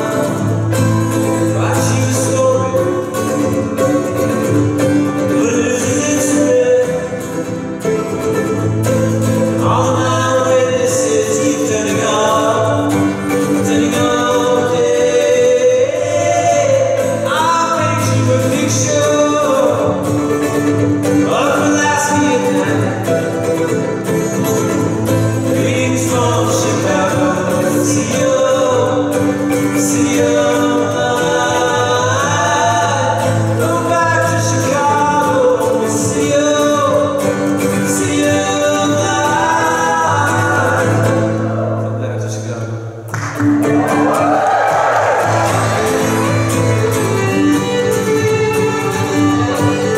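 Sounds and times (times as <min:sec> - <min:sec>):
two men singing: 0:00.0 - 0:04.1, 0:05.1 - 0:07.8, 0:09.5 - 0:20.3, 0:21.0 - 0:23.8, 0:25.1 - 0:41.6
violin: 0:00.0 - 0:41.4, 0:43.6 - 0:49.9
acoustic guitar: 0:00.0 - 0:49.9.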